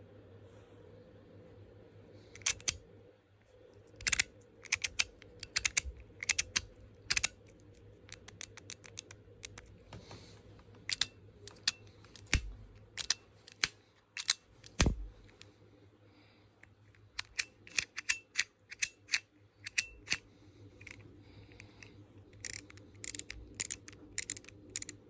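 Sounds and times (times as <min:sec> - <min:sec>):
fidget toy clicking: 0:02.4 - 0:02.8, 0:03.8 - 0:09.7, 0:10.8 - 0:15.5, 0:17.2 - 0:20.2, 0:20.8 - 0:25.0.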